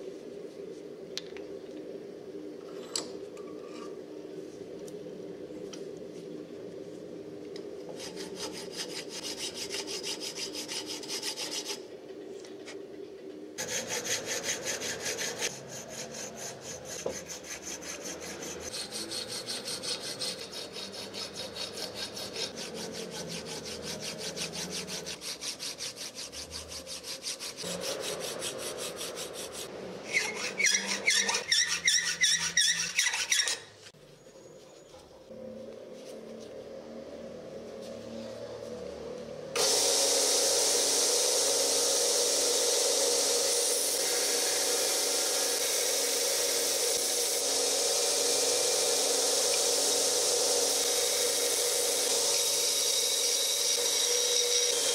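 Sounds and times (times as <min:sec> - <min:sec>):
file rasping on metal: 0:08.0 - 0:11.8, 0:13.6 - 0:33.8.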